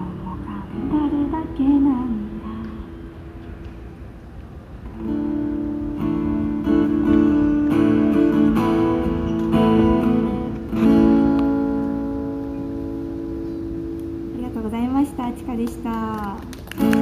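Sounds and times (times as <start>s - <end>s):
acoustic guitar strumming chords: 5.0s - 14.3s.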